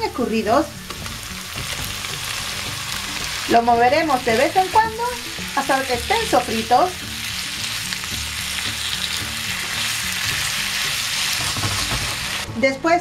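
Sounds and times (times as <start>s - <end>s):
squid sizzling in a pan: 0.2s - 12.5s.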